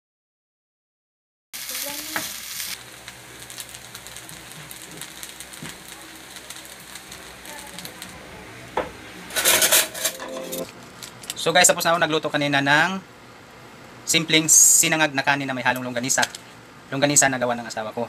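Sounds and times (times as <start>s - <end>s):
rice sizzling in a pan: 1.6s - 10.1s.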